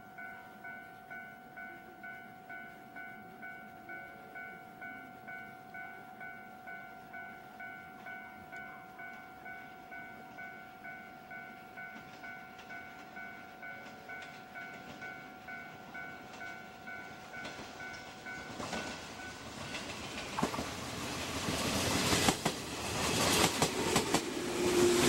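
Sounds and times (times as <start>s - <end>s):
level crossing bell ringing: 0.0s - 19.8s
faint approaching train: 0.0s - 25.0s.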